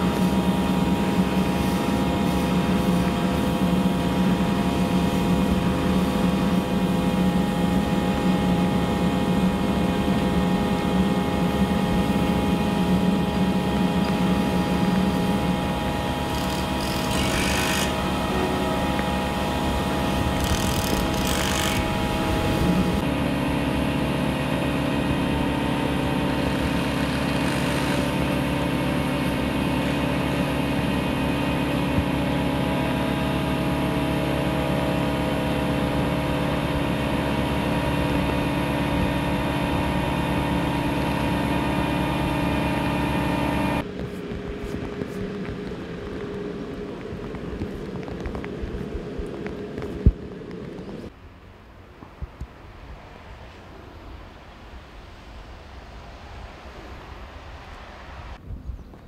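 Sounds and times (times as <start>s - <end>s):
excavator diesel engine running: 0.0s - 46.6s.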